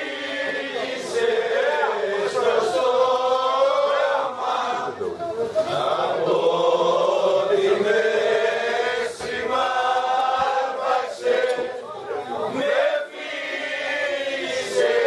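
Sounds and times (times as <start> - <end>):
group singing in unison: 0.0 - 15.0.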